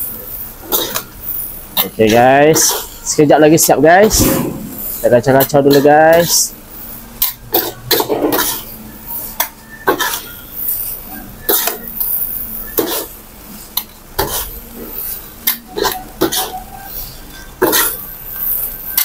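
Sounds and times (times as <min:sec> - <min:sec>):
utensils scraping and clanking on wok: 0:00.6 - 0:03.0, 0:04.6 - 0:06.5, 0:07.2 - 0:10.8.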